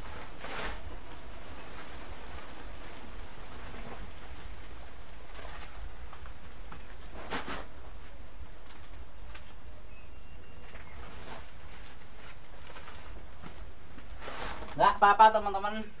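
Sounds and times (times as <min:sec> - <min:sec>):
plastic bag rustling: 0:00.0 - 0:15.0
bird calling: 0:09.9 - 0:11.3.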